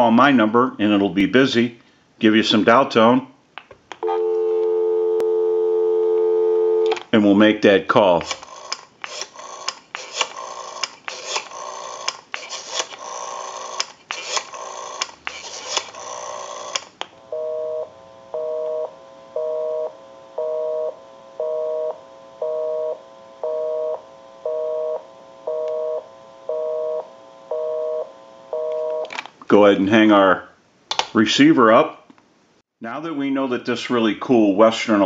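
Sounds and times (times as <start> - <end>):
rotary dial clicks and crackle: 8.2 - 17.1.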